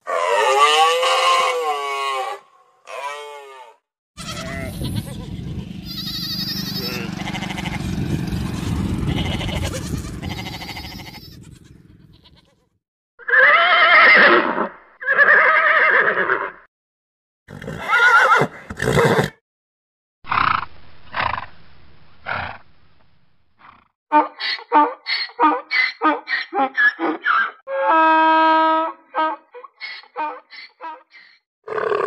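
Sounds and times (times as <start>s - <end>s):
horses neighing: 0.1s - 8.0s, 9.0s - 12.5s, 13.2s - 16.6s, 17.5s - 19.4s
sheep flock bleating: 4.2s - 7.8s, 9.1s - 12.6s.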